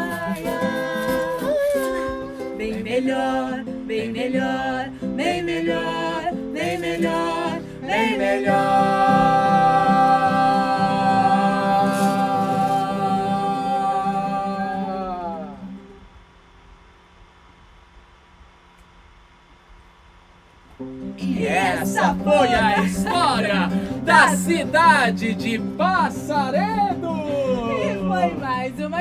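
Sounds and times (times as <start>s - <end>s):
man and woman singing together: 0.0s - 15.7s, 21.2s - 25.8s
acoustic guitar: 0.0s - 16.2s, 20.7s - 29.0s.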